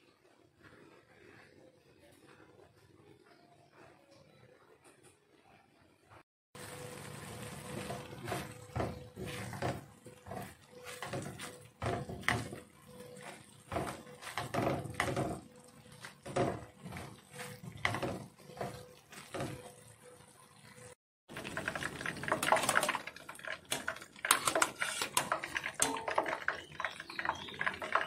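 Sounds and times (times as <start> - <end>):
spatula scraping a frying pan: 7.6 - 19.9, 21.5 - 28.0.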